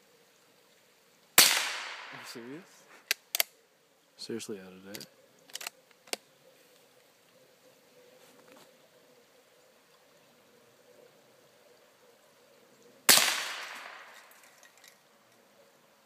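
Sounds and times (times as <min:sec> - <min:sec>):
gunshot: 0:01.4 - 0:02.3, 0:13.1 - 0:14.1.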